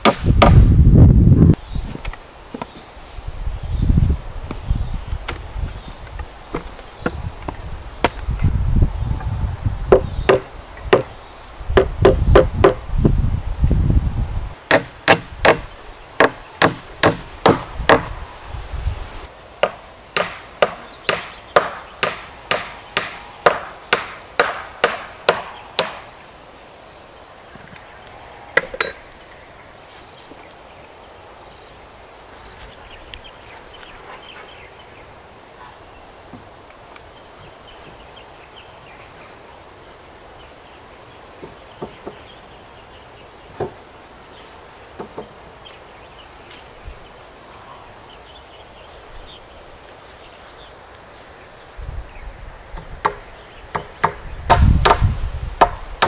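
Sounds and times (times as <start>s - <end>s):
hammer driving nails into wood: 14.7s - 18.1s.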